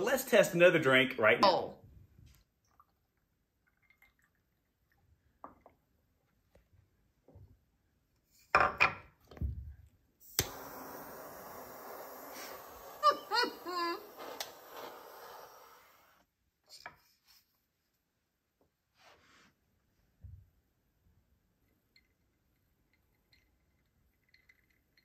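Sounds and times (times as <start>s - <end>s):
torch flame hissing: 10.2s - 16.2s
torch lighter clicking: 10.3s - 12.3s.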